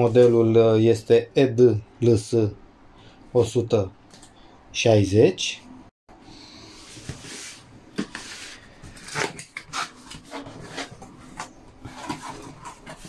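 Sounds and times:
cardboard flaps scraping: 6.9 - 13.0.

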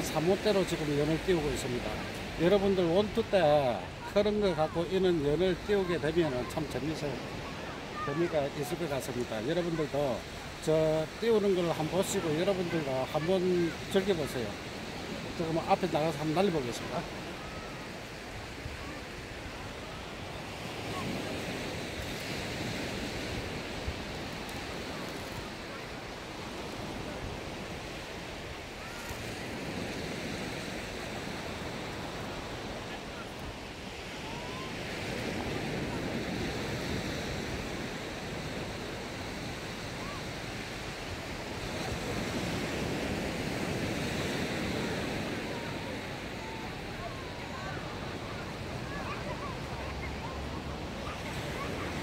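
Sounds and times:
surf washing onto beach: 0.0 - 52.0
wind on microphone: 17.0 - 52.0.

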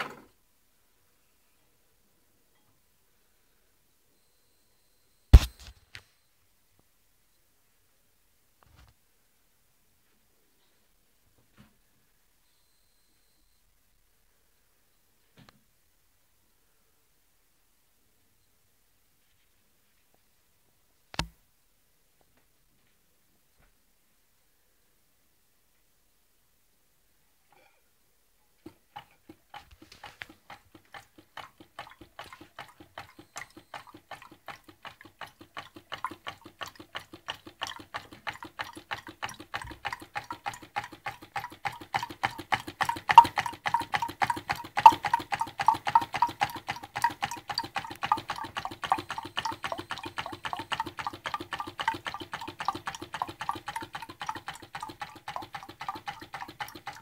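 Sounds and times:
small engine knocking: 28.6 - 57.0.

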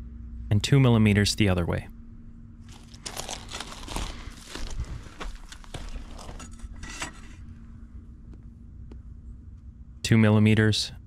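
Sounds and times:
footsteps on gravel: 2.7 - 6.7.

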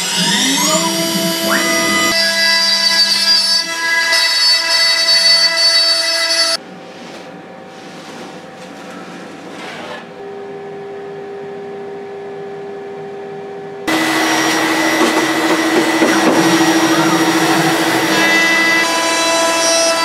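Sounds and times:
vacuum dust extractor rushing: 0.0 - 2.2, 13.9 - 20.0
router spindle whine: 0.0 - 6.6, 10.2 - 20.0.

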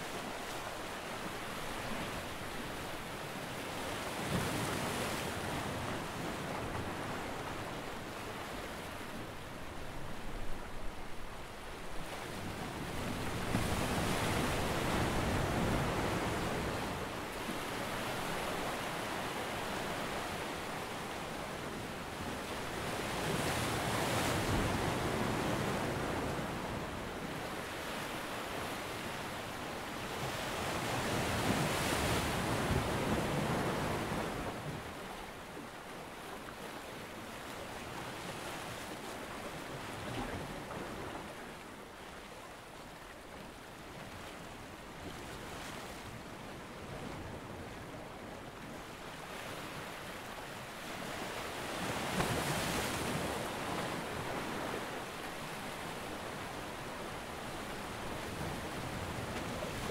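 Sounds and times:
ocean waves breaking: 37.8 - 59.9.

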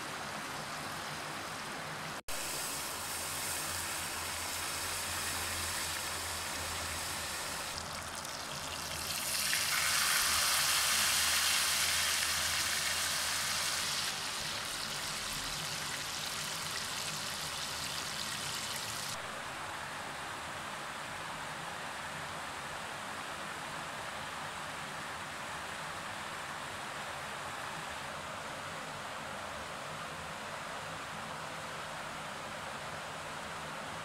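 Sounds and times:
fish frying in oil: 2.3 - 19.2.

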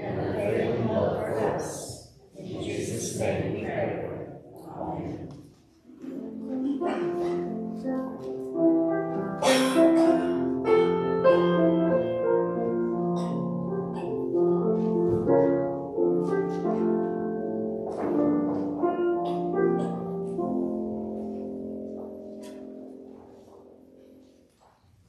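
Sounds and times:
keyboard playing held chords: 6.1 - 24.4.

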